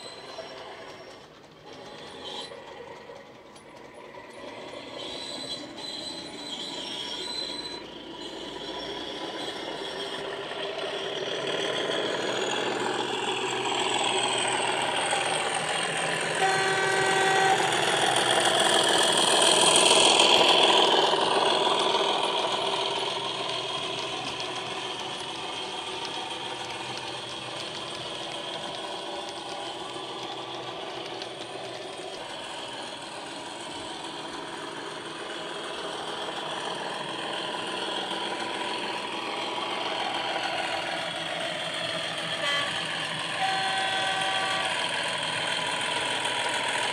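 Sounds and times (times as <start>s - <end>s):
model locomotive diesel engine sound: 0.0s - 46.9s
short horn blast: 16.4s - 17.8s, 43.4s - 44.8s.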